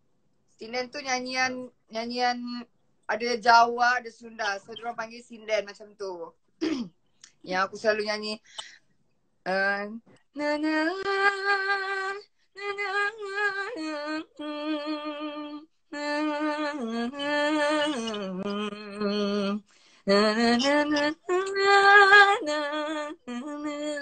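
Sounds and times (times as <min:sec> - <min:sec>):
woman singing unaccompanied: 0:09.5 - 0:24.0.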